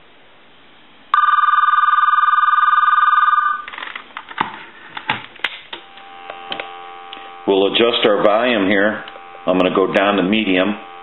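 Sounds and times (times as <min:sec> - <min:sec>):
telephone warbling ring: 0:01.2 - 0:03.7.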